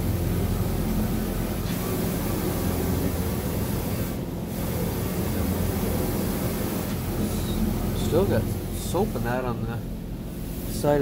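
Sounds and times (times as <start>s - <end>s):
low hum: 0.0s - 11.0s
water jets spraying on van: 0.0s - 11.0s.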